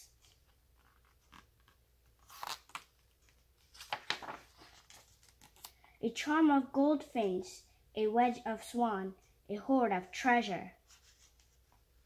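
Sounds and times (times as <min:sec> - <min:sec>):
book page turning: 0:00.1 - 0:05.8, 0:10.9 - 0:11.7.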